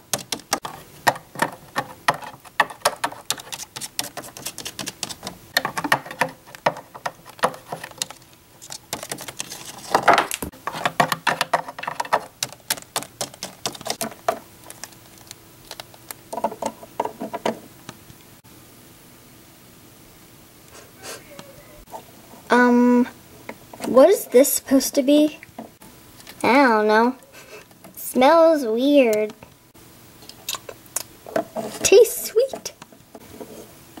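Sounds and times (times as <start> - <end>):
plastic toys tapping on wood: 0.0 - 14.9, 15.7 - 18.0.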